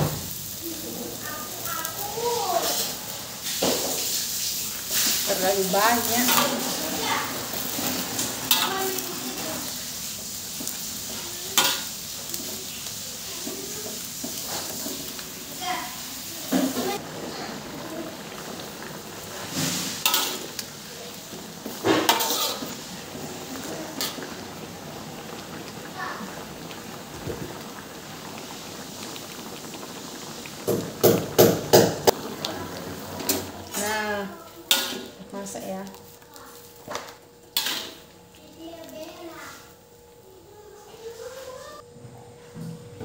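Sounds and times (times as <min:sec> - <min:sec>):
sizzle and hiss in hot pan: 0:00.0 - 0:41.8
water boiling: 0:00.0 - 0:41.8
fork stirring greens in wok: 0:19.3 - 0:20.7, 0:21.3 - 0:22.9, 0:34.7 - 0:35.2, 0:37.6 - 0:38.0.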